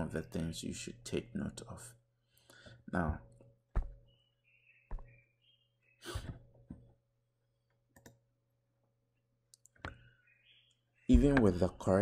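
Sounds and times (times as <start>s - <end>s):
computer mouse clicks: 7.9s - 8.2s.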